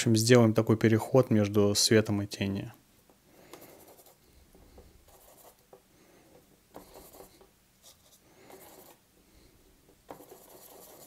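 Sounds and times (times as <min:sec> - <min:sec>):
brush rubbing through paint: 0:05.0 - 0:05.6, 0:06.7 - 0:09.0, 0:10.1 - 0:11.0.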